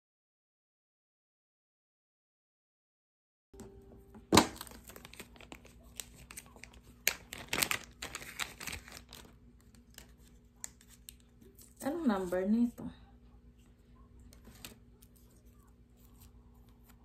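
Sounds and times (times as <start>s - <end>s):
plastic bag crinkling: 4.3s - 12.3s.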